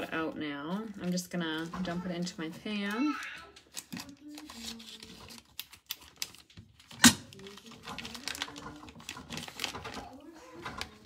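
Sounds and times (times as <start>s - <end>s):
plastic crinkling: 0.0s - 11.0s
scissors snipping plastic: 3.6s - 11.0s.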